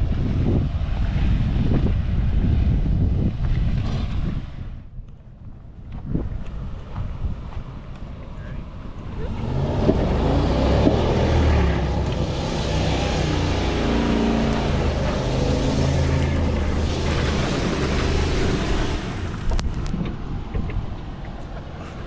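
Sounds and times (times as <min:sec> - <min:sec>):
truck engine revving: 0:09.0 - 0:21.8
rushing noise: 0:09.1 - 0:22.0.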